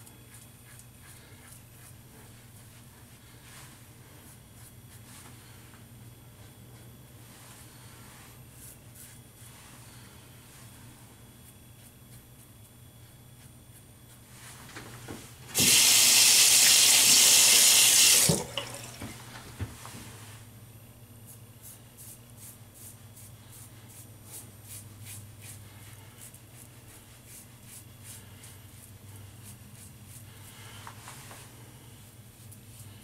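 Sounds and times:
faucet running into sink: 0:15.6 - 0:19.2.

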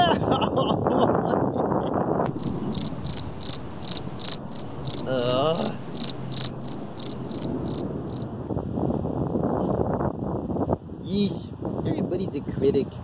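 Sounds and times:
crickets chirping: 0:02.3 - 0:08.4
wavering hum: 0:02.3 - 0:08.5.

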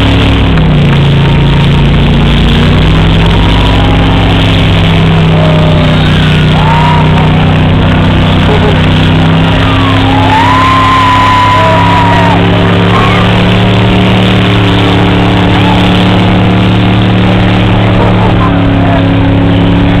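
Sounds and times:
car engine revving: 0:00.0 - 0:20.0
crowd shouting and whooping: 0:02.8 - 0:20.0.

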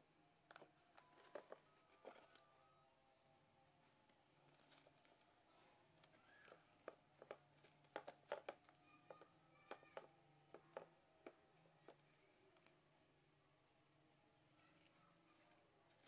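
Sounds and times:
plastic toy truck clicks and taps: 0:06.8 - 0:12.7.

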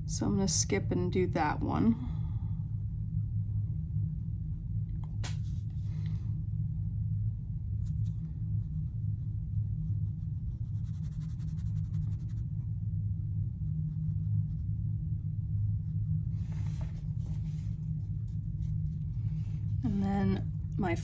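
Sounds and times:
steady low hum: 0:00.0 - 0:21.0
brush scratching on paper: 0:07.8 - 0:12.7.

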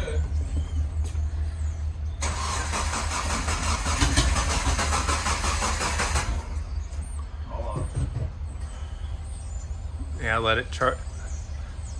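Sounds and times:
engine starter cranking: 0:02.2 - 0:06.6.

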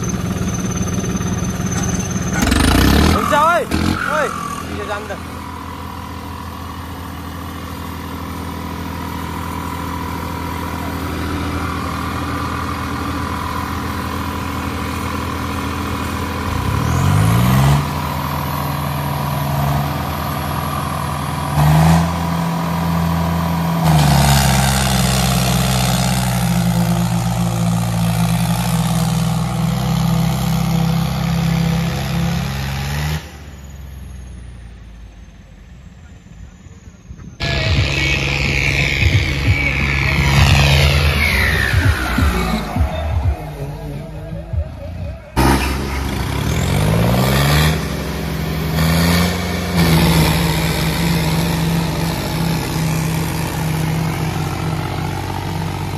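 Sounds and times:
tractor diesel engines under load: 0:00.0 - 0:55.9.

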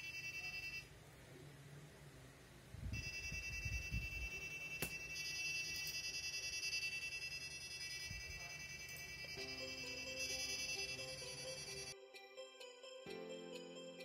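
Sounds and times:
alarm ringtone: 0:00.0 - 0:00.9, 0:03.0 - 0:14.0.

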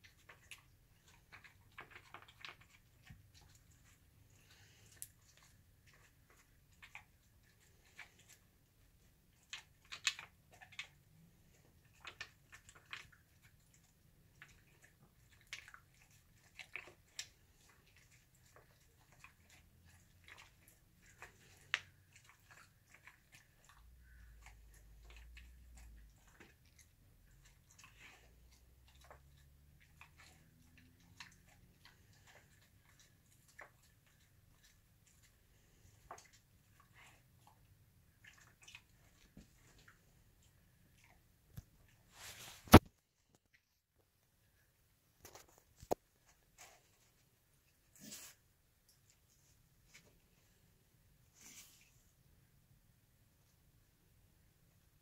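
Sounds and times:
dog crunching food: 0:00.0 - 0:04.0, 0:09.3 - 0:11.0, 0:11.8 - 0:37.6.

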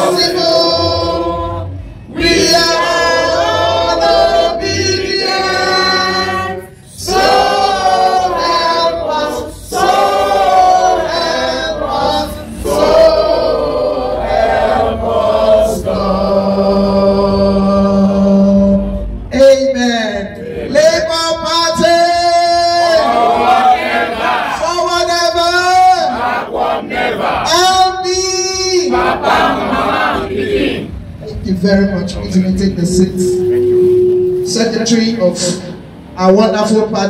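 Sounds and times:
group singing: 0:00.0 - 0:18.9, 0:22.9 - 0:24.6, 0:26.0 - 0:27.6, 0:28.8 - 0:30.9.

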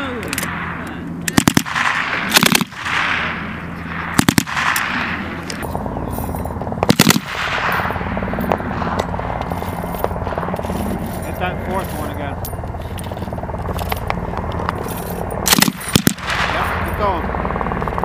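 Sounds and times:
gunfire echo: 0:00.2 - 0:05.7, 0:06.8 - 0:10.8, 0:15.4 - 0:17.0
machine gun firing bursts: 0:00.5 - 0:05.7, 0:06.8 - 0:12.0, 0:12.9 - 0:18.0.

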